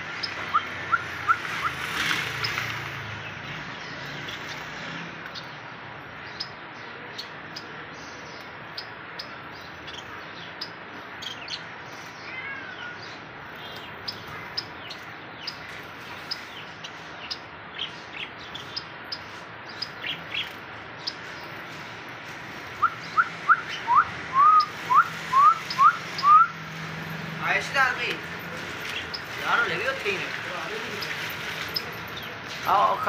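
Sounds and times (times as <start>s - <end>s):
finches chirping: 6.2s - 22.0s, 27.4s - 33.0s.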